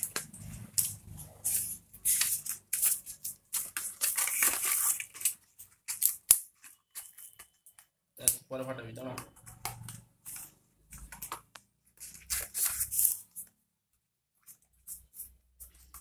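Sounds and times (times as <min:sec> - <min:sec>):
paper and cardboard rustling: 0:00.0 - 0:07.8, 0:09.0 - 0:13.6.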